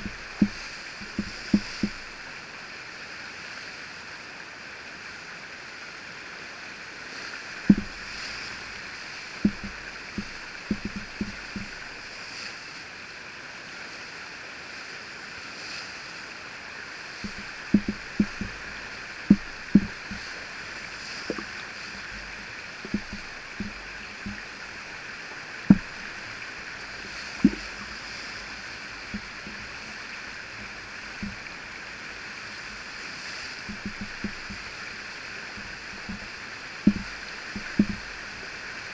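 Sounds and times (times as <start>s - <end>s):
whitewater rushing: 0.0s - 38.9s
short low thumps: 7.7s - 8.1s, 9.4s - 11.8s, 17.2s - 20.4s, 21.3s - 24.5s, 25.7s - 26.1s, 33.7s - 34.7s, 36.9s - 38.1s.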